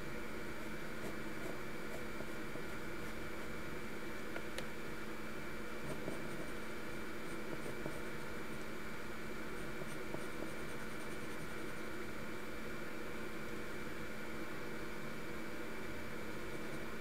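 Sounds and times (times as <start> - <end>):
background hiss and hum: 0.0 - 17.0
pencil scratching on paper: 5.8 - 8.6, 9.6 - 11.9.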